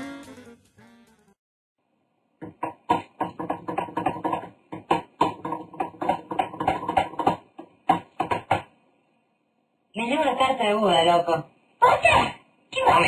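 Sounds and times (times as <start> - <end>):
clatter of taps and clicks: 2.4 - 8.6.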